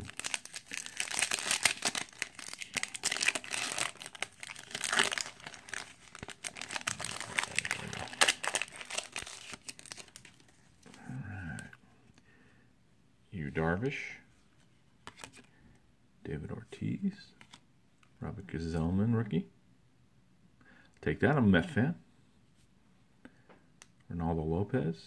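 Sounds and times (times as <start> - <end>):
foil wrapper tearing and crinkling: 0.0 - 10.4.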